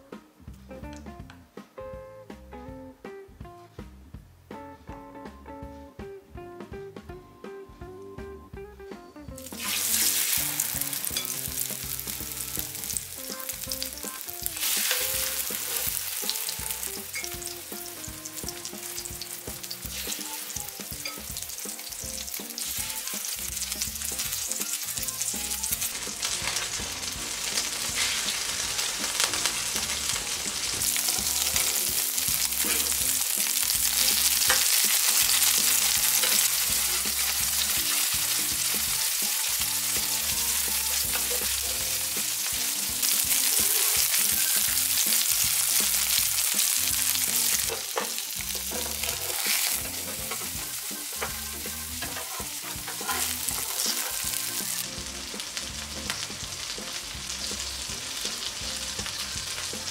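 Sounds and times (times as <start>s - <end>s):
fish sizzling in hot oil: 9.4s - 59.9s.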